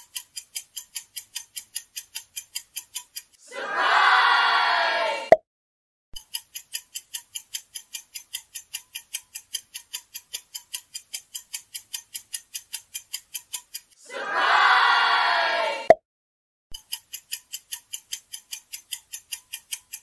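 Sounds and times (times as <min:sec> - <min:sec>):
clock ticking: 0:00.0 - 0:03.4, 0:06.2 - 0:14.0, 0:16.8 - 0:20.0.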